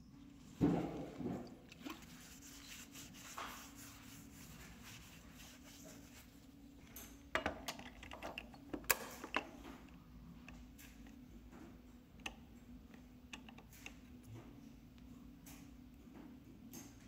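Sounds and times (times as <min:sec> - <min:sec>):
paper towel rubbing on metal: 0:01.8 - 0:06.4.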